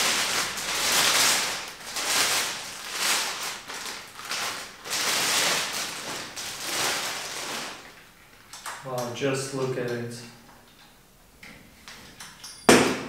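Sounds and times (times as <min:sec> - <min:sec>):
plastic bag crinkling: 0:00.0 - 0:08.5.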